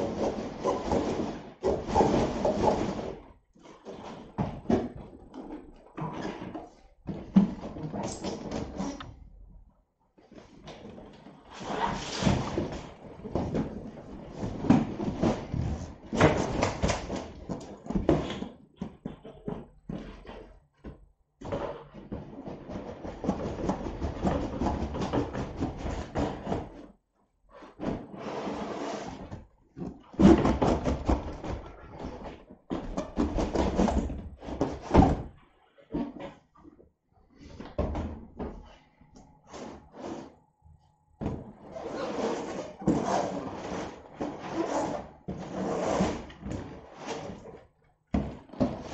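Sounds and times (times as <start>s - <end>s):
boxes knocking on wooden floor: 12.2s - 26.9s, 30.1s - 36.1s, 48.1s - 48.9s
cardboard boxes scraping: 27.6s - 29.4s, 39.5s - 40.4s, 41.6s - 47.6s.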